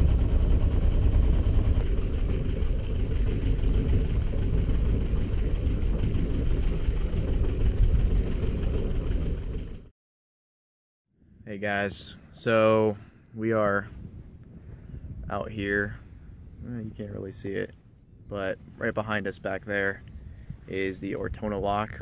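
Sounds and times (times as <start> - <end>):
boat diesel engine running: 0.0 - 9.9.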